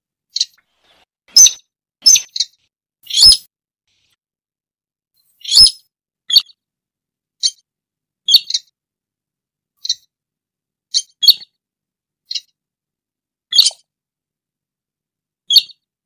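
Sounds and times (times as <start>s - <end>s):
bird giving sharp high calls: 3.1s - 3.5s, 5.4s - 6.5s.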